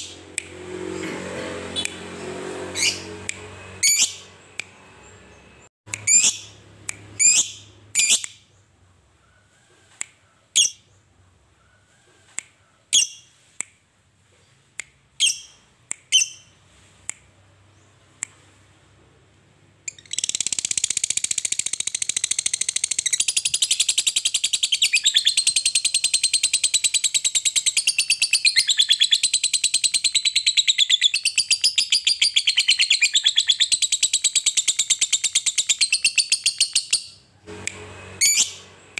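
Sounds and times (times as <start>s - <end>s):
lovebird chirping: 2.8s - 3.2s, 3.8s - 9.6s, 10.3s - 11.9s, 19.8s - 37.2s, 38.2s - 38.7s
lovebird chattering trill: 5.9s - 6.6s, 7.2s - 8.3s.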